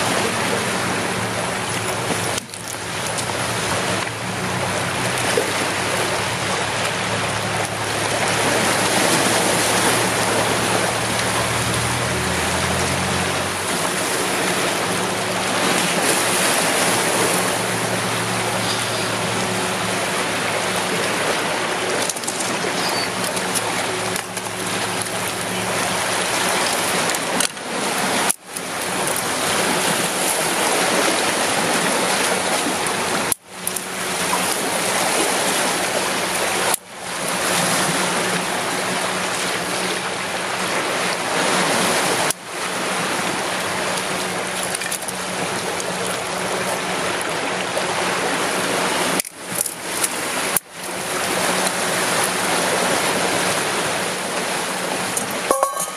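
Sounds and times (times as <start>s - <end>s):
low hum: 0.0s - 27.8s
sea water washing against rocks: 0.0s - 55.9s.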